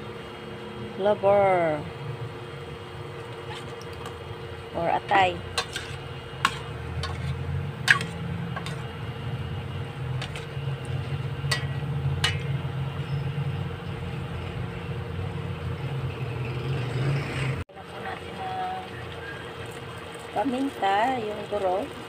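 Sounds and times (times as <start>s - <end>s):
spatula scraping steel pan: 5.5s - 8.9s, 10.2s - 13.2s.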